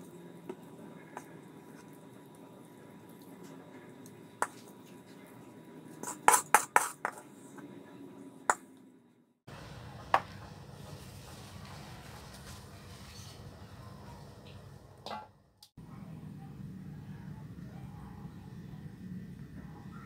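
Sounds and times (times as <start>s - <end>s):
spatula scraping a wok: 5.9s - 7.6s.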